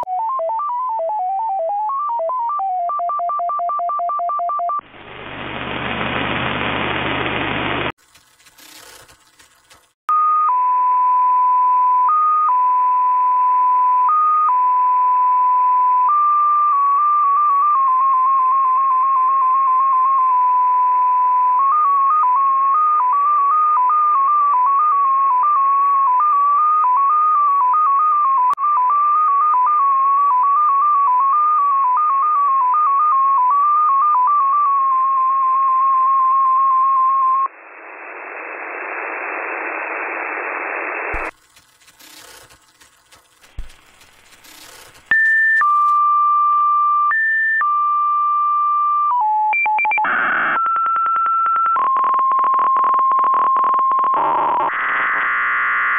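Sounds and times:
radio static: 0:04.8 - 0:09.9, 0:37.5 - 0:46.0
receiver hiss: 0:04.8 - 0:10.0, 0:37.5 - 0:46.0.

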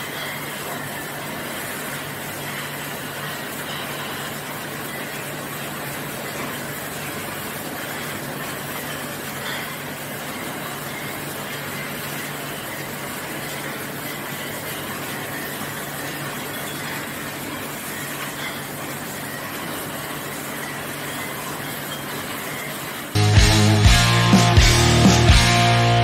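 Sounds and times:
bottling machine running: 0:00.0 - 0:26.0
loud music: 0:23.2 - 0:26.0.

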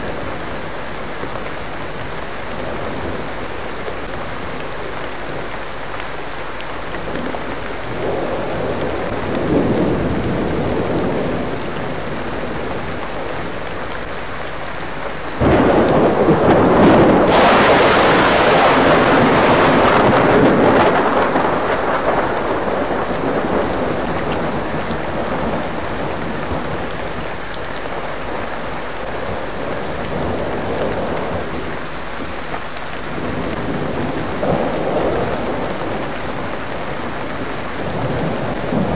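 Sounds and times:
steady rain: 0:00.0 - 0:38.9
loud thunderclap rumbling: 0:07.1 - 0:13.4, 0:15.4 - 0:27.3, 0:29.0 - 0:31.7, 0:33.1 - 0:38.9.

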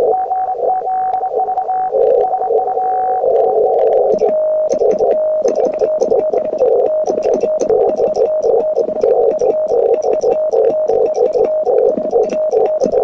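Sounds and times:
morse code tone: 0:00.0 - 0:13.0
receiver noise hiss: 0:00.0 - 0:13.0
steady radio tone: 0:00.0 - 0:13.0.

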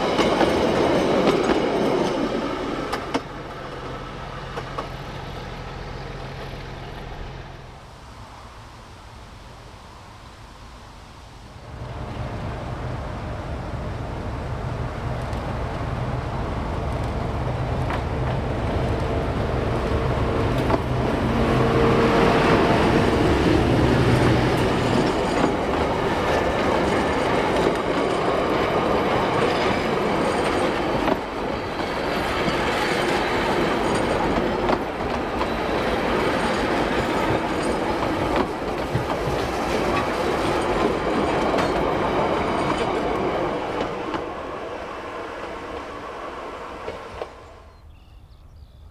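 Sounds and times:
diesel locomotive engine passing: 0:00.0 - 0:09.2, 0:11.6 - 0:48.0
carriages rumbling: 0:13.7 - 0:47.6
wheels clicking over rail joints: 0:22.5 - 0:44.4.

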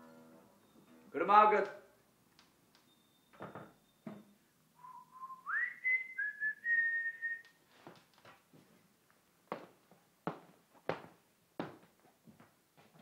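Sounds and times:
man whistling: 0:04.8 - 0:07.6.

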